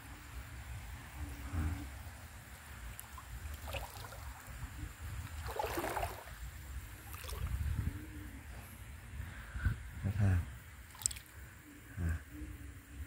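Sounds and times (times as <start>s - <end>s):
water splashing and trickling: 2.5s - 7.9s, 10.8s - 11.4s.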